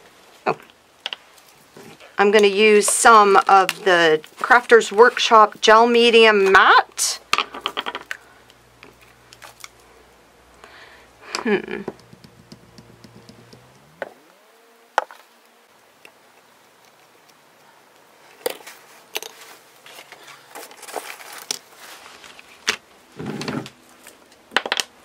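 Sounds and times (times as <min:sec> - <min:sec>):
taps and rustles on table: 0:11.9 - 0:14.2
paper plate scraping across table: 0:23.1 - 0:23.8.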